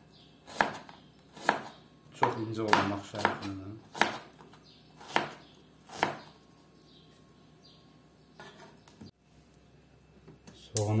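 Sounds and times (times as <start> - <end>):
knife slicing onion on board: 0.4 - 6.4.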